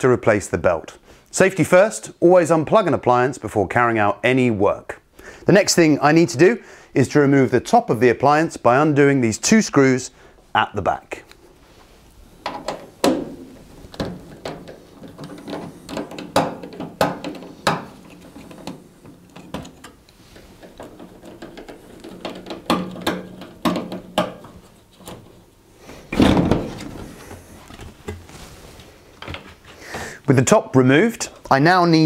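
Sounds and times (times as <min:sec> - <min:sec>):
metal panel knocking and scraping: 0:12.4 - 0:25.2.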